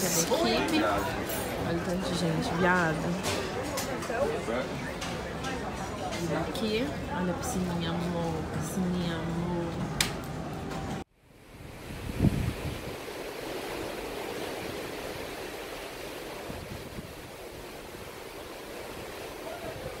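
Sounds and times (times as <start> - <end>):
sea rushing: 11.2 - 20.0
wind rushing: 11.5 - 14.1.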